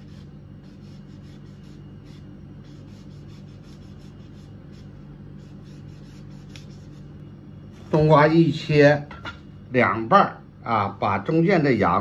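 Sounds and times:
cleaver scraping melon skin: 0.0s - 7.2s
steady low hum: 0.0s - 12.0s.

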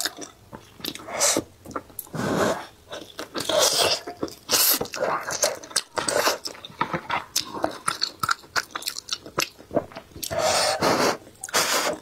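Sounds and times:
chewing mouth clicks and smacks: 3.0s - 10.3s.

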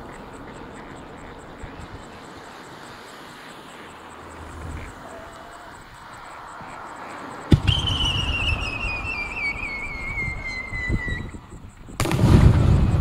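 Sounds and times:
falling firework whistle: 7.5s - 11.4s.

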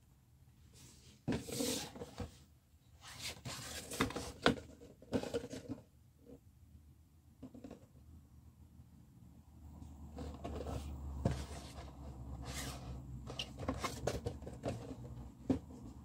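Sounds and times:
cardboard box scraping and rustling: 0.8s - 2.4s, 3.0s - 5.7s, 10.1s - 16.0s.

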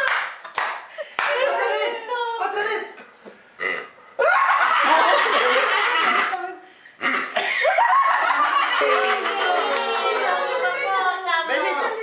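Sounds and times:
group of people laughing: 4.2s - 6.5s, 7.4s - 12.0s.

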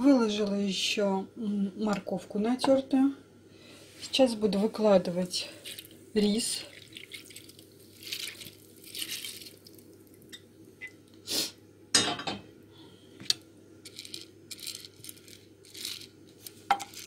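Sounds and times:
rice poured into glass dish: 6.5s - 10.3s.

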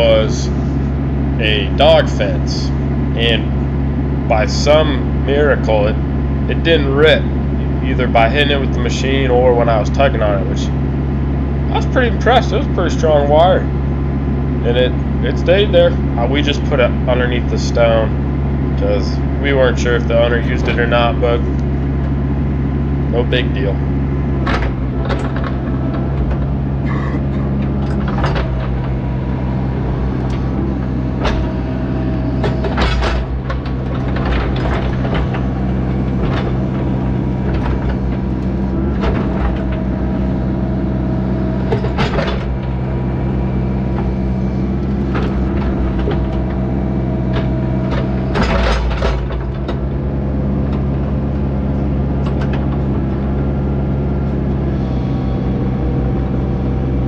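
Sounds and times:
diesel engine running: 0.0s - 57.0s
metal knocks and clanks: 24.3s - 56.3s.

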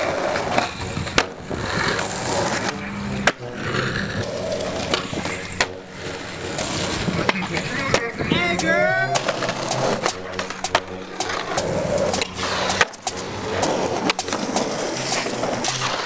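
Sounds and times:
skateboard tail clacks: 0.0s - 16.0s
skateboard wheels rolling on asphalt: 0.0s - 16.0s
person shouting: 8.0s - 9.3s.

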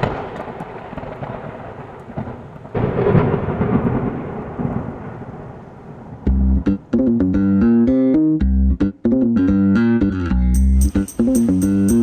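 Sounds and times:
rain: 0.0s - 6.6s
thunder rumbling: 0.0s - 7.0s.

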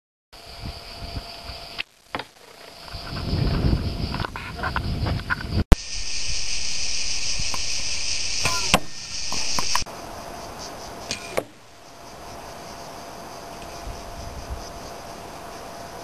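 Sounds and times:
insect chorus: 0.4s - 16.0s.

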